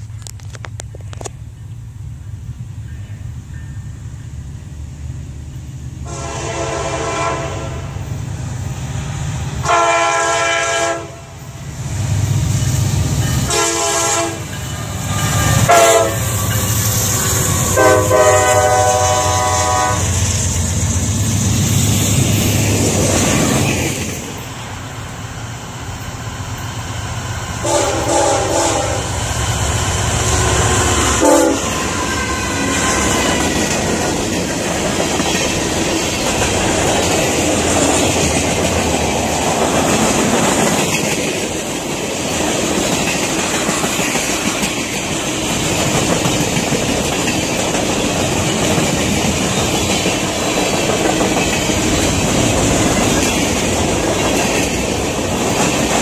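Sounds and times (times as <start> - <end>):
train wheels rolling on rails: 0.0 - 56.0
locomotive horn blasts: 6.0 - 8.0, 9.6 - 11.4, 13.5 - 14.5, 15.2 - 16.3, 17.6 - 20.2, 27.6 - 29.2, 30.2 - 33.3.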